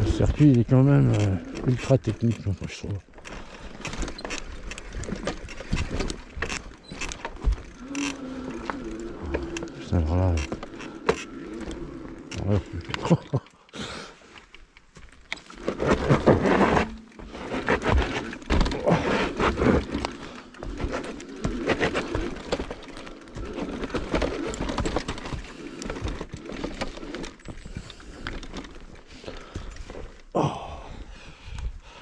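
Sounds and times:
mountain bike rattling on trail: 0.0 - 13.6, 14.2 - 30.4.

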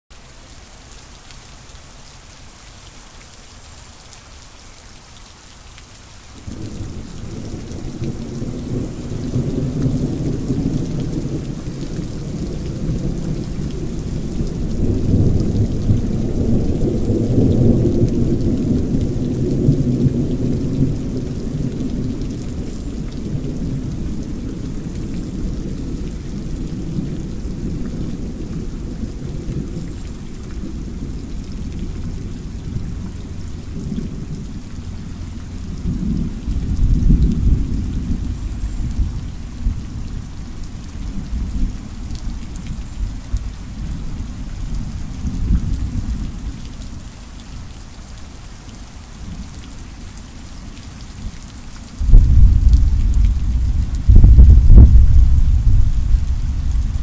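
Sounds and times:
rain falling: 0.1 - 57.0
thunder rumbling: 6.4 - 40.2, 52.0 - 57.0.

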